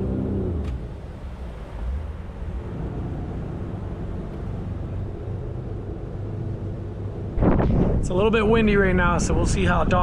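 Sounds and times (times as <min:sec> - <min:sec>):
motorboat engines rumbling: 0:00.0 - 0:10.0.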